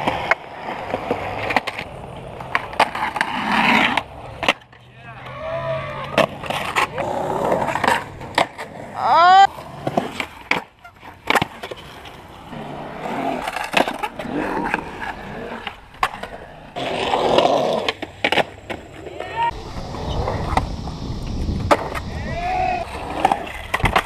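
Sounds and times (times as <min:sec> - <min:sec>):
skateboard pops and landing clacks: 0:00.0 - 0:04.8, 0:06.1 - 0:08.7, 0:09.7 - 0:12.0, 0:13.4 - 0:19.0, 0:21.4 - 0:22.1, 0:23.0 - 0:24.0
skateboard wheels rolling on concrete: 0:00.0 - 0:24.0
rising squeal: 0:19.2 - 0:23.2.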